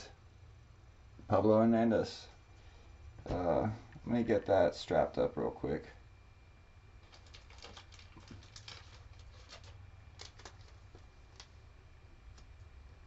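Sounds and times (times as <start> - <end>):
card rustling into plastic sleeve: 7.0 - 11.6.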